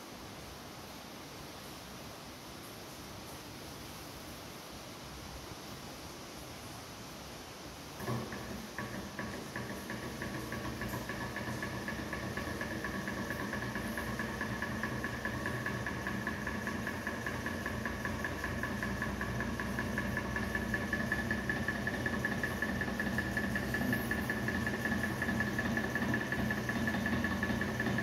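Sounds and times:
hot-air fan engine beating: 0:07.9 - 0:28.0
steady whine: 0:08.0 - 0:28.0.

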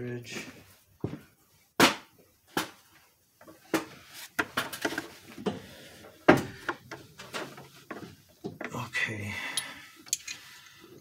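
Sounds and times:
metal parts clinking and clacking: 0:09.5 - 0:10.5.

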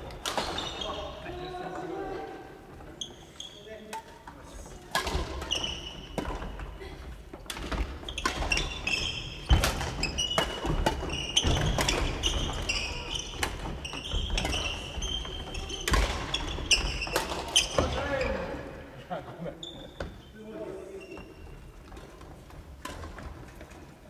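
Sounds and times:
sneaker squeaks: 0:00.0 - 0:01.3, 0:02.8 - 0:06.8, 0:07.6 - 0:18.6, 0:19.6 - 0:22.3
rackets hitting shuttlecocks: 0:04.9 - 0:06.7, 0:07.3 - 0:17.9.

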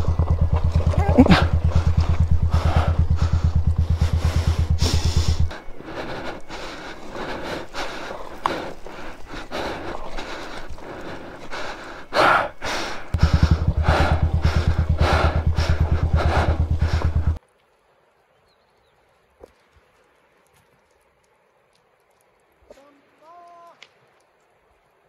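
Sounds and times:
motorcycle engine idling: 0:00.0 - 0:17.4
rider breathing hard: 0:00.0 - 0:17.4
stones crunching under tyres: 0:19.0 - 0:22.9.

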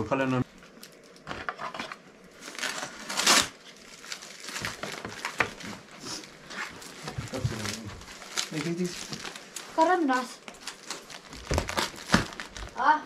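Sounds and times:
plastic crinkling: 0:00.6 - 0:12.9
packing tape being pulled off: 0:02.2 - 0:12.8
tape ripping: 0:02.4 - 0:05.8, 0:06.7 - 0:12.8.

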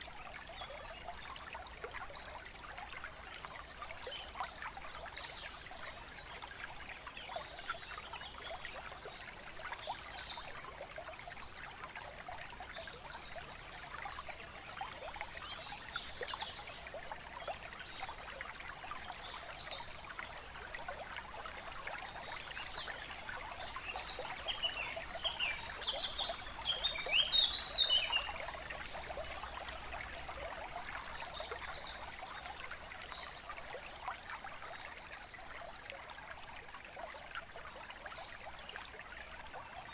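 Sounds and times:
water trickling: 0:00.0 - 0:39.9.

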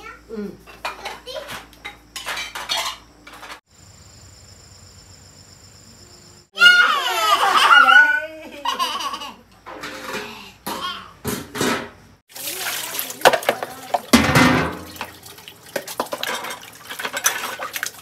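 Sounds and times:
dishes and spoon clinking: 0:00.7 - 0:03.6, 0:15.8 - 0:17.8
child's loud wavering outburst: 0:06.6 - 0:08.4.

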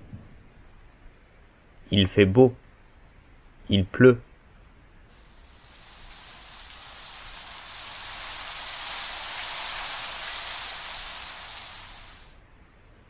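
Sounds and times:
rain falling: 0:05.1 - 0:12.4.

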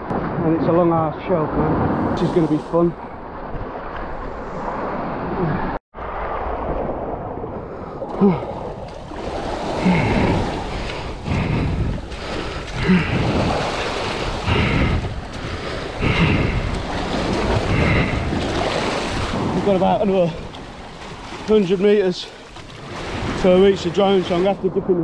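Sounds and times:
wind buffeting microphone: 0:00.0 - 0:25.0
waves splashing over rocks: 0:06.1 - 0:24.8.

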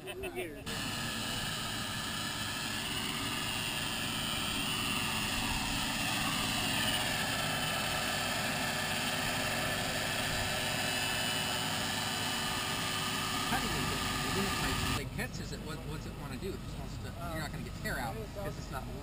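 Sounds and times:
electric power tool running: 0:00.6 - 0:15.0
dust extractor running: 0:00.6 - 0:15.6.

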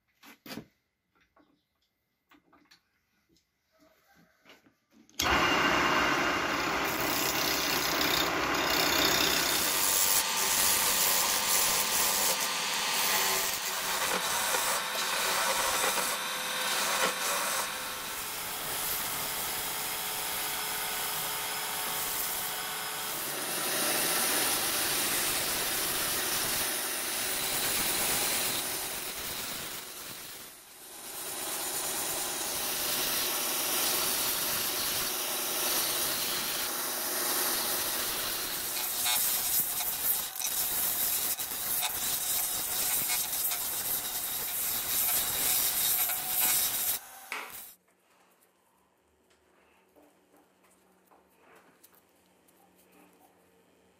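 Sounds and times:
wood lathe spinning: 0:05.2 - 0:47.7
band saw cutting wood: 0:05.2 - 0:47.8
hand tool cutting turning wood: 0:05.2 - 0:47.8.

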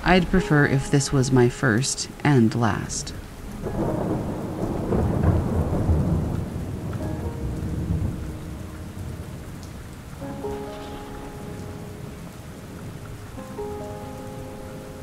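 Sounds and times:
soft held musical tones: 0:00.0 - 0:03.9
steady rain: 0:00.0 - 0:15.0
rolling thunder: 0:03.4 - 0:13.0.

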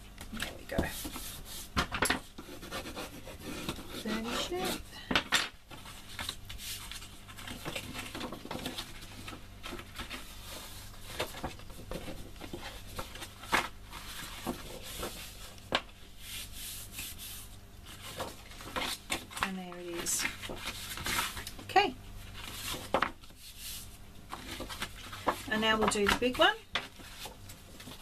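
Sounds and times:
paper rustling on a tabletop: 0:05.7 - 0:28.0.

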